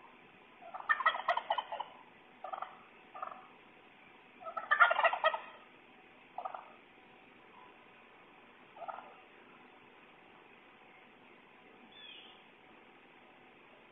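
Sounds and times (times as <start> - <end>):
turkey gobbling: 0.6 - 3.5, 4.4 - 5.7, 6.4 - 6.8, 8.7 - 9.2
turkey single calls: 0.6 - 3.5, 4.4 - 5.7, 6.4 - 6.8, 8.7 - 9.2, 11.9 - 12.4.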